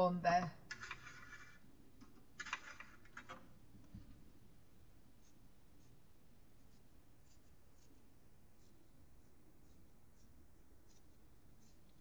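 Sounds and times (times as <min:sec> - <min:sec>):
paintbrush swishing on paper: 0:05.2 - 0:12.0.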